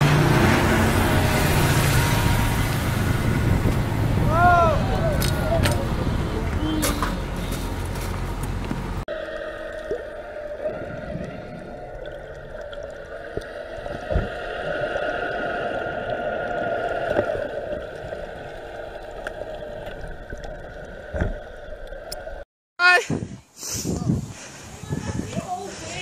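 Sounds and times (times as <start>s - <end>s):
underwater scooter motor whine: 0.0s - 7.8s, 8.6s - 22.4s
loud low rumbling: 0.0s - 22.2s
water gurgling: 9.1s - 22.4s.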